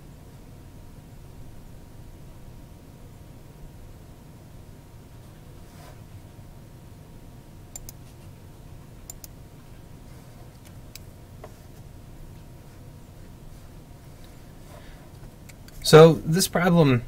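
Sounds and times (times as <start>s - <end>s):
low room and computer hum: 0.0s - 17.0s
computer mouse clicking: 7.7s - 8.0s, 9.1s - 9.4s.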